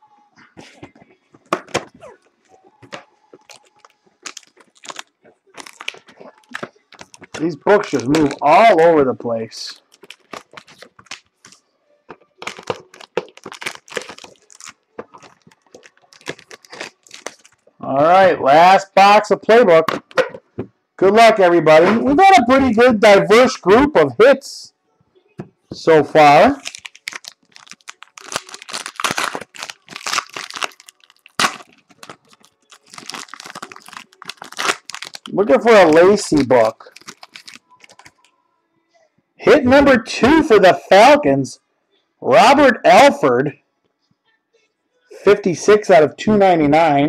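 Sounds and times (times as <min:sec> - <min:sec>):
card packaging crinkling: 0:03.4 - 0:08.8, 0:09.6 - 0:11.6, 0:12.4 - 0:17.7, 0:26.4 - 0:38.3.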